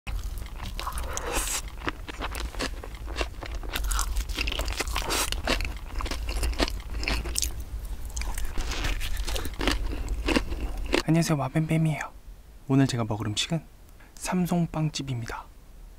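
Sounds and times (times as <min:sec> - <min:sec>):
crisp bread crunching: 0:00.1 - 0:11.0
soft chewing: 0:00.1 - 0:11.1
steady low hum: 0:00.1 - 0:15.9.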